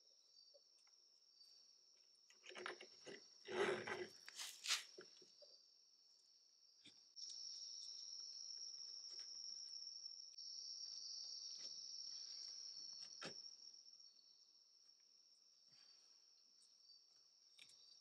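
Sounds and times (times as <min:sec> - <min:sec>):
high-pitched insect trill: 0:04.4 - 0:14.7.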